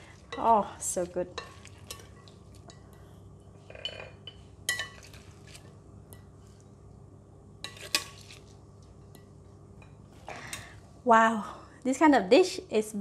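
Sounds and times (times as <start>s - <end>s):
low steady hum: 0.0s - 13.0s
tongs clinking on dishes: 3.6s - 5.4s.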